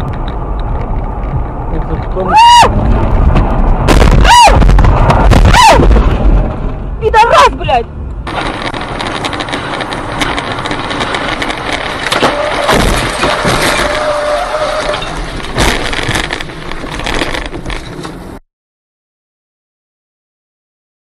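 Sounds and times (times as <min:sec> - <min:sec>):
road and wind noise in car: 0:00.0 - 0:18.4
debris knocking on car: 0:08.3 - 0:14.3, 0:15.2 - 0:17.7.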